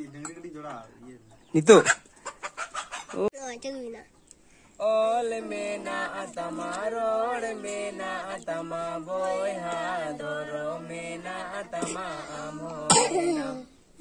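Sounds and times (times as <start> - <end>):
person singing unaccompanied: 4.7 - 14.0.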